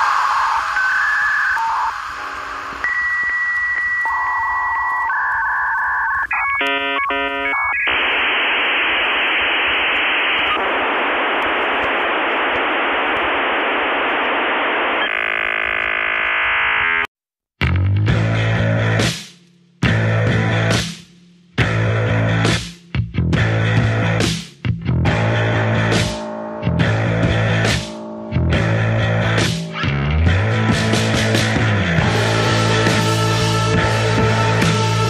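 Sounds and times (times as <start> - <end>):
dial-up modem beeps and static: 0.0 - 17.1.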